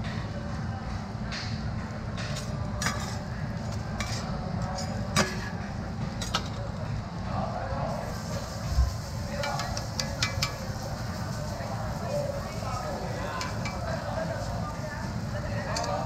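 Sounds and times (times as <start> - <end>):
metal spatula scraping griddle: 2.4 - 5.5.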